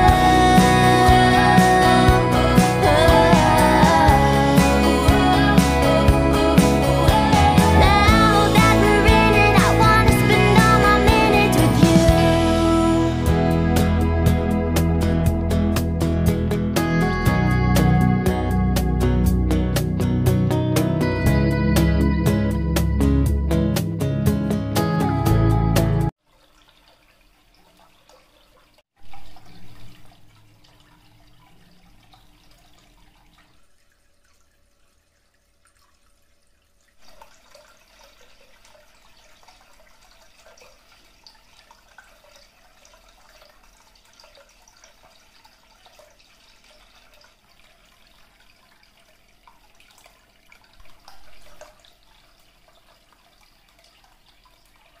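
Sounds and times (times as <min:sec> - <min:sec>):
fountain water trickling: 0:26.1 - 0:55.0.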